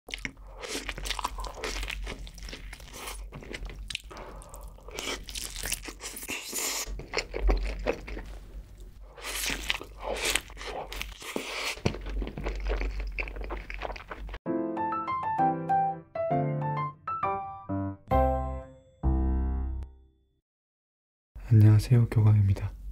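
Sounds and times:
crunchy chewing and biting: 0.1s - 14.4s.

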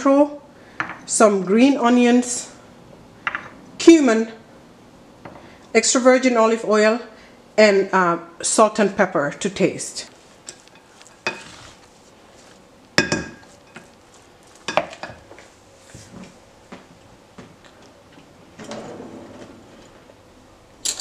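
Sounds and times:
spoon scraping in bowl: 10.4s - 15.2s.

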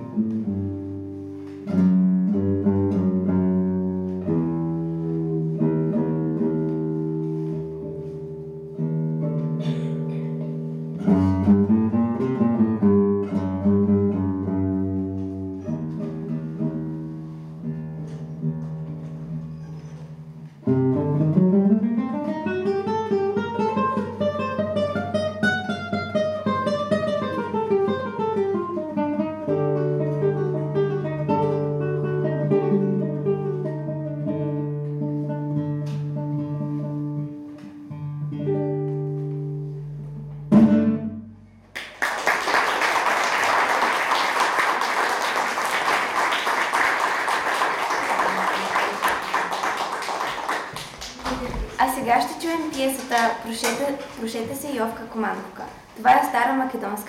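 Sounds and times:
solo classical guitar: 0.0s - 41.8s
audience applause: 41.8s - 51.8s.

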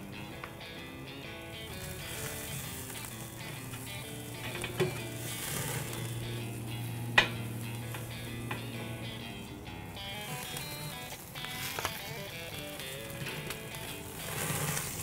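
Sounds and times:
steaks sizzling on a grill: 0.0s - 15.0s
tongs clicking on a grate: 1.7s - 8.8s.

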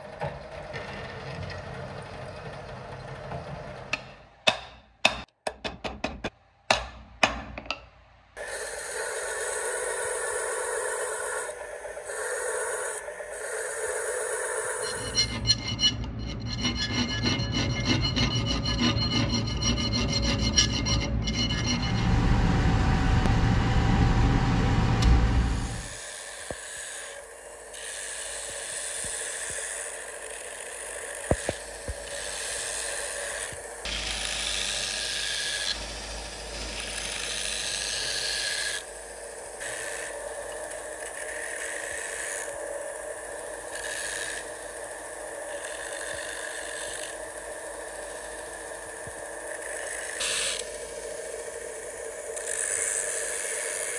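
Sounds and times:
grinding hiss: 8.4s - 15.5s, 25.4s - 53.9s
hand file rasping on steel: 14.8s - 21.6s.

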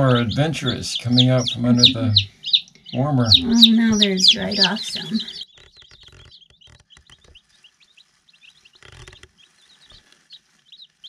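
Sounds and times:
chicks peeping: 0.0s - 11.0s
faint rustles: 5.2s - 11.0s.

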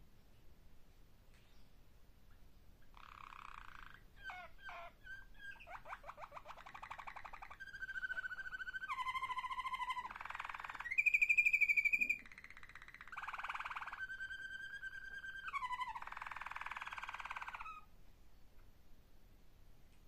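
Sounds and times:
canary singing trills: 2.8s - 17.9s.

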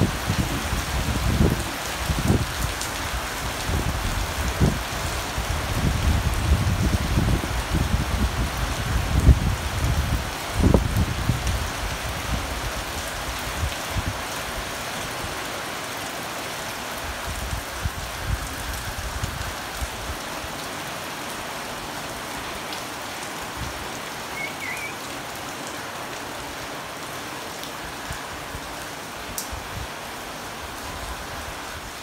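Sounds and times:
wind gusts on microphone: 0.0s - 14.6s, 17.1s - 20.2s
rain on foliage: 0.0s - 32.0s.

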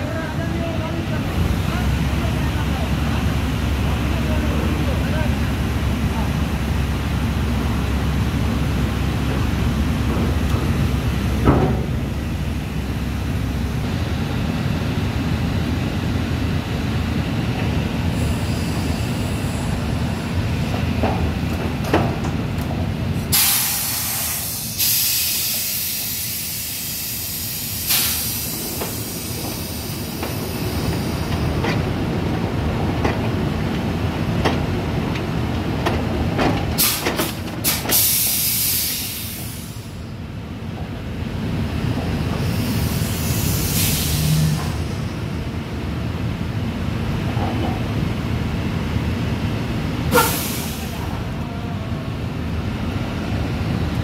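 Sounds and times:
loud hissing: 23.2s - 31.3s, 37.6s - 40.0s, 42.4s - 45.0s.

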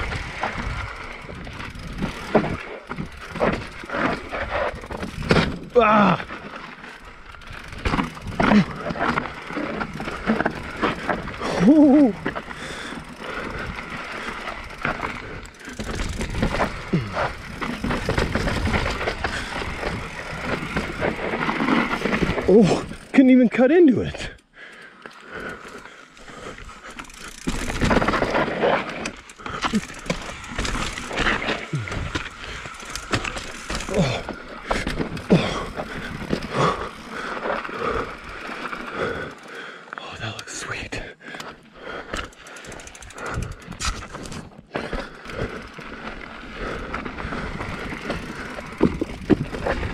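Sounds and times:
bike knocking and rattling: 0.0s - 39.6s, 41.3s - 49.9s
bike tyres on loose dirt: 0.0s - 49.9s
rider grunting: 1.7s - 7.0s, 7.6s - 23.2s, 25.3s - 39.6s
knocks over roots and rocks: 27.4s - 36.5s.

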